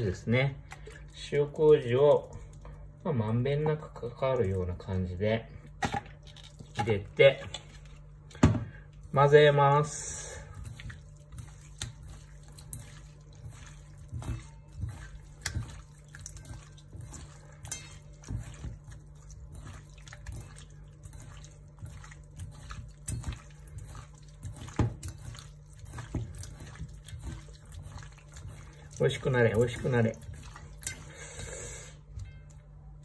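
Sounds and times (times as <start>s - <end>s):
hands squelching raw chicken: 6.2s - 32.6s.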